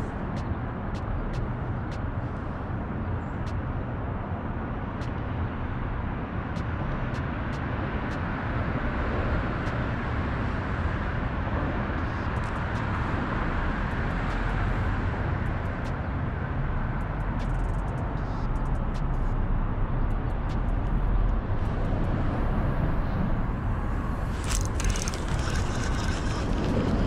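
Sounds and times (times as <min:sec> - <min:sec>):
road traffic rumble: 0:00.0 - 0:27.0
faint light ticks: 0:17.0 - 0:19.3.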